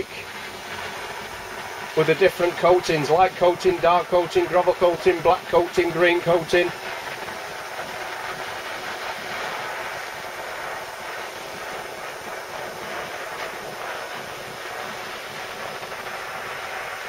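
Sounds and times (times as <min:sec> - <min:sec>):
blowtorch flame hissing: 0:00.0 - 0:17.0.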